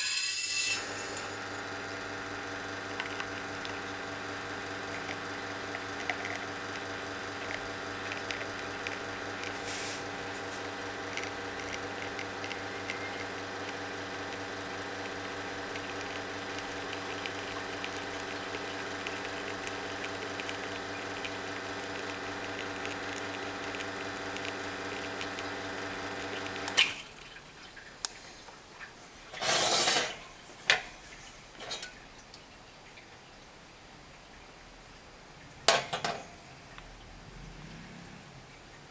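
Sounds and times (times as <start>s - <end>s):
espresso machine pump humming: 0.0s - 26.9s
short burst of hiss: 9.6s - 10.1s.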